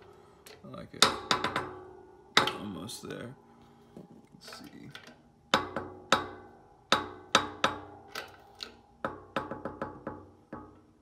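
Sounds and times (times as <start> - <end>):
hammer striking steel tube: 5.5 - 8.1.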